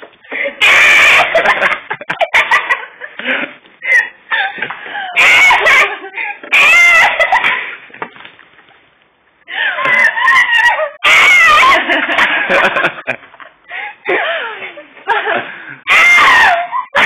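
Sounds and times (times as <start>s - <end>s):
woman shrieking and laughing: 0.3s - 2.9s, 3.8s - 7.8s, 9.5s - 12.7s, 15.8s - 17.0s.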